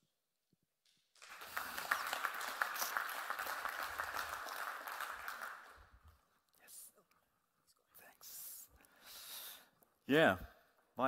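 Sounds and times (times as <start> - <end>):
audience applauding: 1.2 - 6.0.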